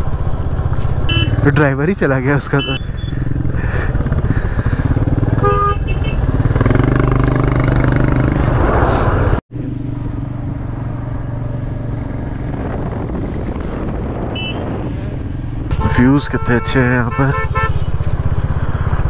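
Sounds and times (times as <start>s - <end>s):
motorcycle engine running: 0.0s - 8.4s, 17.3s - 19.0s
vehicle horn tooting: 1.1s - 1.4s, 5.4s - 6.3s, 14.3s - 14.7s, 15.7s - 18.0s.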